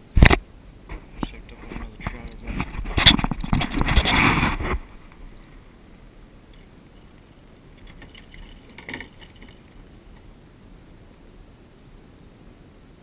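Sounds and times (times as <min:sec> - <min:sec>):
microphone handling noise: 0:00.0 - 0:05.5
faint steady hiss: 0:00.0 - 0:13.0.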